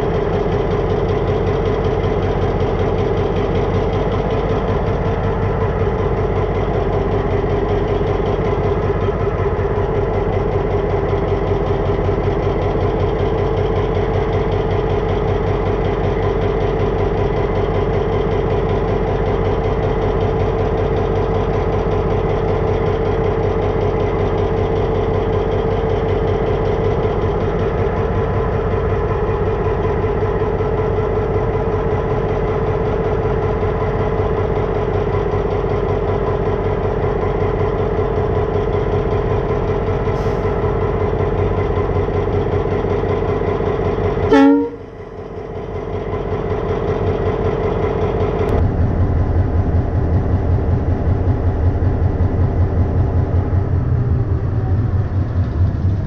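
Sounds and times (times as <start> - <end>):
diesel locomotive engine running: 0.0 - 56.0
constant whine: 36.8 - 56.0.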